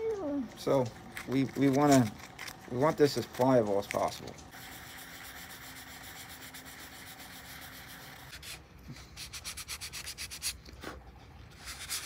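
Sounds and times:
sandpaper rubbing on wood: 4.6 - 10.6, 11.5 - 12.0.

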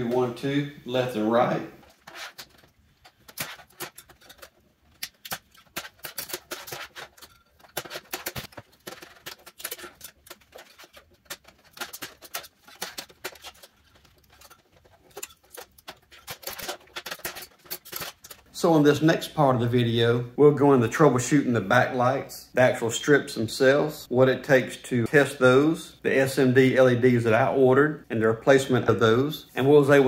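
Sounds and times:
metal scraper scraping sheet metal: 1.8 - 18.5.

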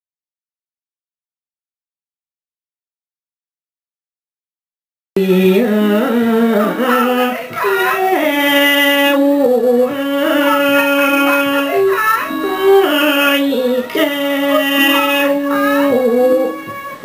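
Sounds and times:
classical melody with long notes: 5.3 - 17.0.

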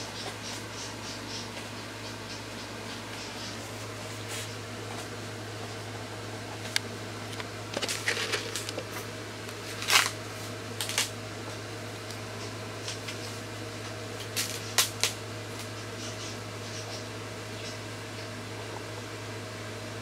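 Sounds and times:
turtle claws scratching plastic: 7.7 - 8.9.

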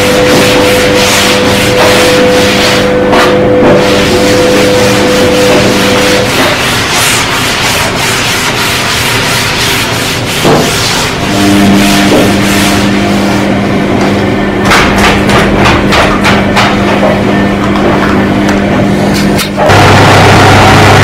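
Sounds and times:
steady low hum: 0.0 - 19.9
cloth rubbing on tabletop: 0.2 - 13.5.

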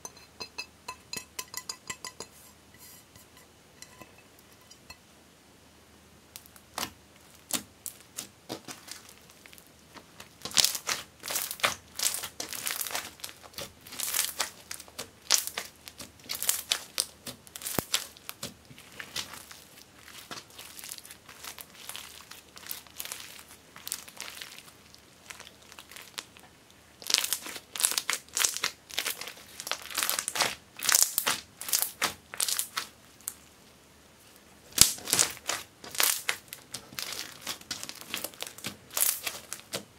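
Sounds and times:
slime crackling and popping: 6.3 - 26.4, 27.0 - 33.5, 34.7 - 39.9.

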